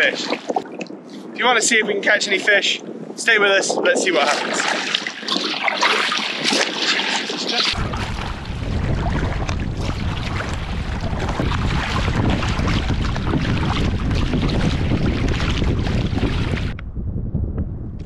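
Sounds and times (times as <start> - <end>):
kayak paddling through choppy water: 0.0 - 1.4, 3.8 - 16.8
wind buffeting microphone: 0.0 - 18.0.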